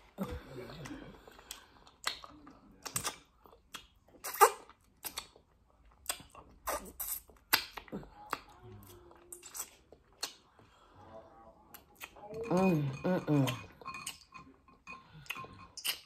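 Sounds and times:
licking fingers and lip smacks: 1.4s - 8.6s, 9.3s - 10.5s.

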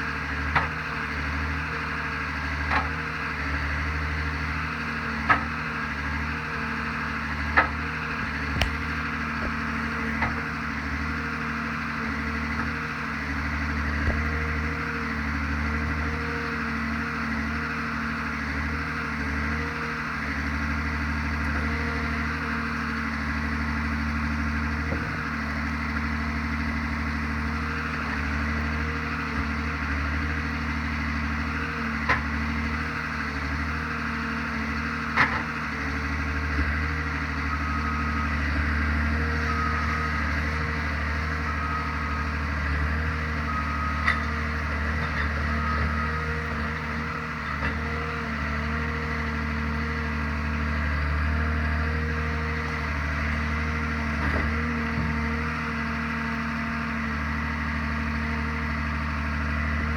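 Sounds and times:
diesel engine running: 0.0s - 59.9s
logs knocking on wood: 8.5s - 9.6s.

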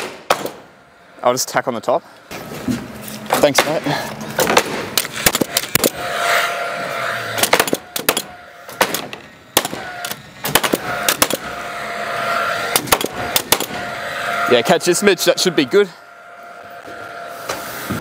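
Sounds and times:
nail gun firing into timber: 0.0s - 0.6s, 4.4s - 5.9s, 7.4s - 11.4s, 12.8s - 13.8s
faint hum: 0.1s - 18.0s.

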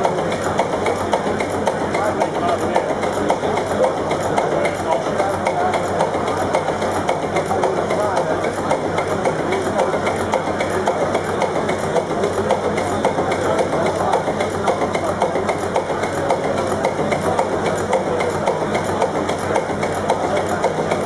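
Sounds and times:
diesel engine idling with knocks: 0.0s - 21.0s.

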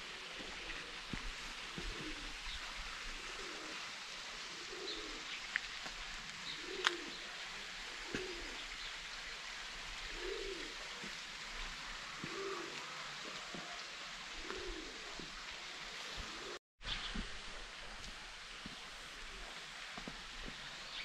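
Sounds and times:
pigeon cooing: 0.0s - 5.3s, 6.5s - 8.7s, 10.0s - 11.2s, 12.1s - 15.4s, 16.0s - 16.6s
steady hiss: 0.0s - 21.0s.

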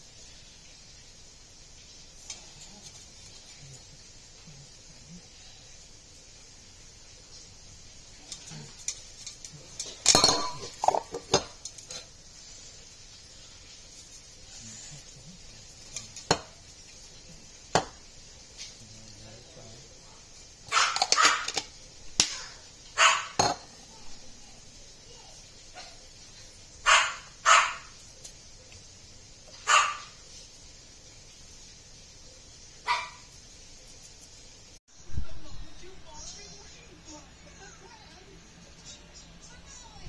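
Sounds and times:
dog barking: 20.7s - 21.6s, 23.0s - 23.6s, 26.8s - 28.0s, 29.6s - 30.2s, 32.8s - 33.3s.

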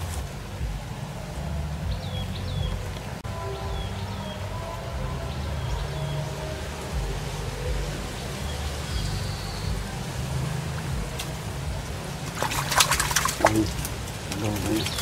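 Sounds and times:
light rain on pond water: 0.0s - 15.0s
fish splashing at surface: 12.1s - 15.0s.

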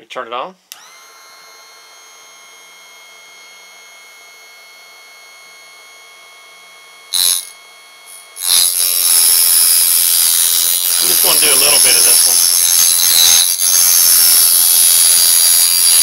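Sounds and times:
sharpener motor whine: 0.7s - 16.0s
knife blade grinding: 7.1s - 16.0s.

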